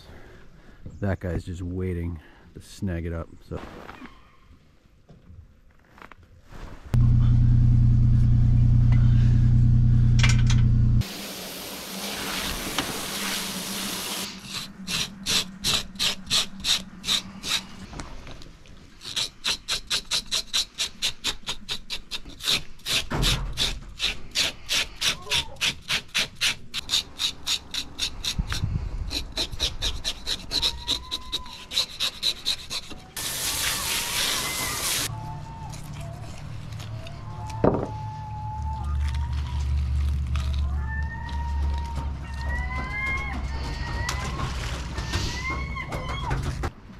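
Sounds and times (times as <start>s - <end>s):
loud low hum: 7.0s - 11.1s
metal scaler scraping fish scales: 19.0s - 35.1s.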